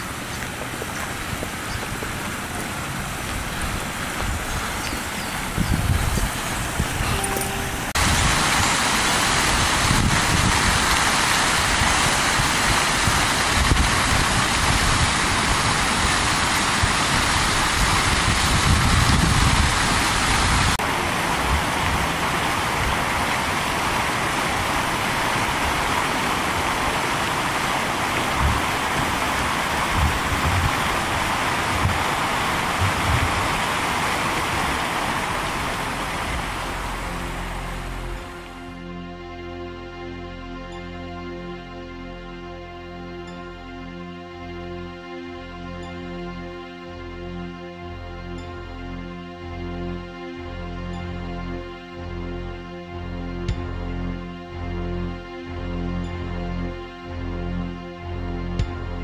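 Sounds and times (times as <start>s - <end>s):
wind buffeting microphone: 0.0s - 7.2s, 7.8s - 27.1s, 27.8s - 35.0s
rushing outdoor noise: 0.0s - 38.8s.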